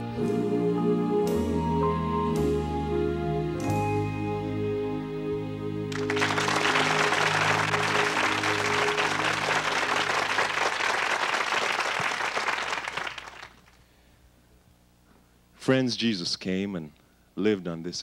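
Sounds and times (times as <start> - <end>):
held gospel chord: 0.0 - 11.9
audience applause: 5.9 - 13.8.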